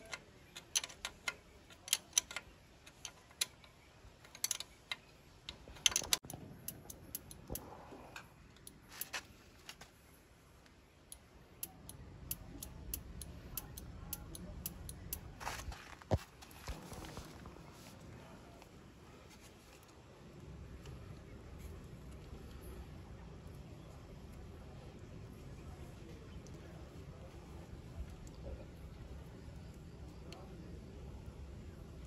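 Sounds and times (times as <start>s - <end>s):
wrench clicking on bolt: 0.0s - 7.6s, 11.1s - 15.2s.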